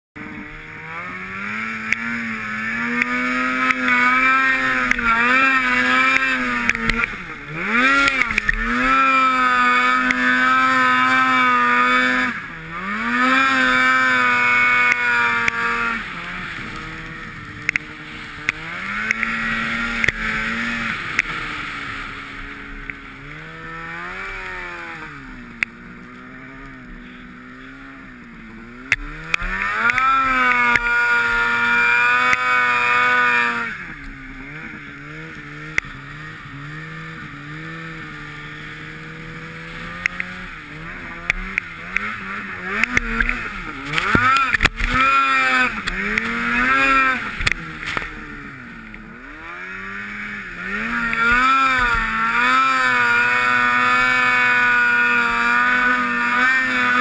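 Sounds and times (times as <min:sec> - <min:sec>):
snowmobile engine revving: 0:00.2 - 0:57.0
sharp ticks: 0:42.8 - 0:45.0.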